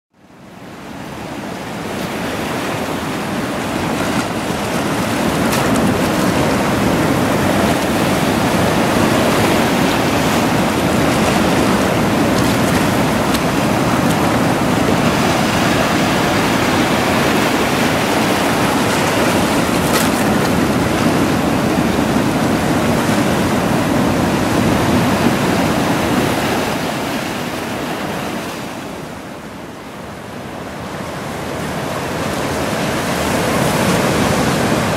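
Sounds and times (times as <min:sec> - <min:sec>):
sea waves washing over rocks: 0:00.6 - 0:29.4, 0:30.6 - 0:34.9.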